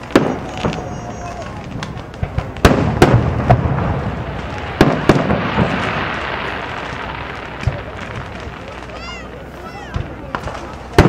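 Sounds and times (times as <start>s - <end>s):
fireworks bursting with bangs: 0.0s - 11.0s
fireworks hiss: 0.0s - 11.0s.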